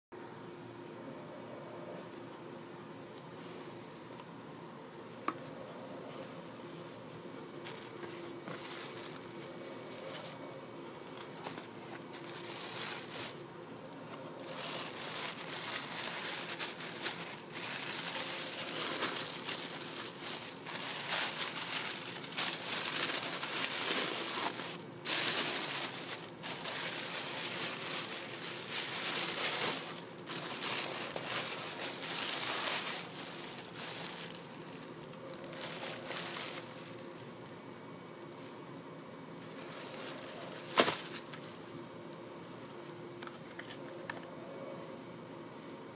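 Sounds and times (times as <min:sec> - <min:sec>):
tissue paper crinkling: 0:07.5 - 0:37.3, 0:39.4 - 0:41.5.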